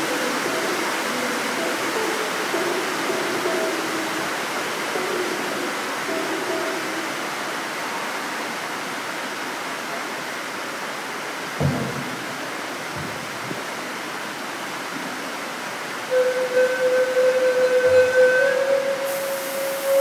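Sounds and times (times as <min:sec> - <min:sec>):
hall noise hiss: 0:00.0 - 0:11.5, 0:13.6 - 0:20.0
held musical note: 0:16.1 - 0:20.0.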